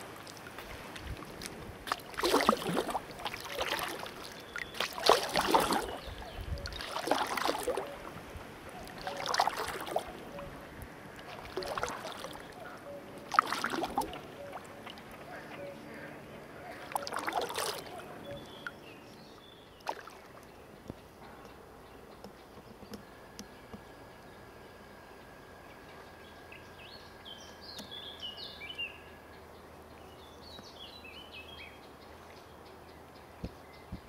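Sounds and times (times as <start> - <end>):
songbird singing falling notes: 26.4 - 29.1.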